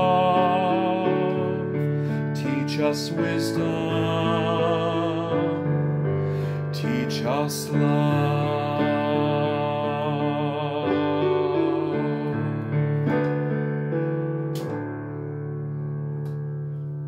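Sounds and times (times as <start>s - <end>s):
man singing hymn: 0.0s - 12.9s
piano chords: 0.0s - 17.0s.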